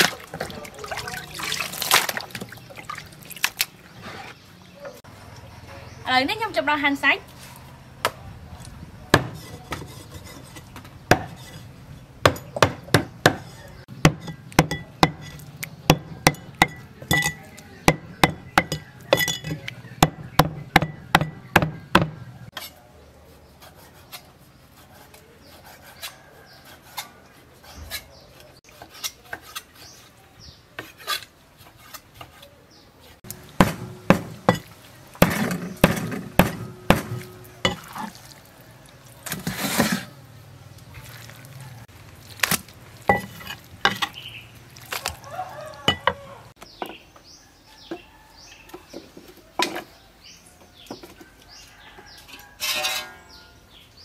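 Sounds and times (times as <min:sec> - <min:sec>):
cleaver chopping meat on wood: 0:09.1 - 0:09.9, 0:12.2 - 0:15.2, 0:15.8 - 0:16.8, 0:17.8 - 0:18.9, 0:19.5 - 0:22.2, 0:33.3 - 0:34.6, 0:35.2 - 0:37.8.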